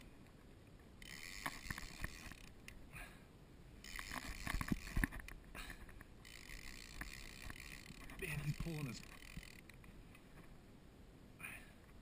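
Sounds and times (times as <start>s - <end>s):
fishing reel clicks and knocks: 1.0s - 2.8s, 3.8s - 9.9s.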